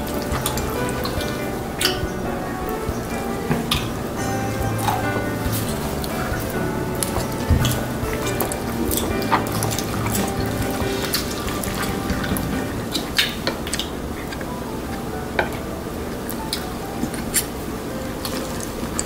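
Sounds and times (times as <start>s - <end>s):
noodles squelching in bowl: 3.0s - 14.5s.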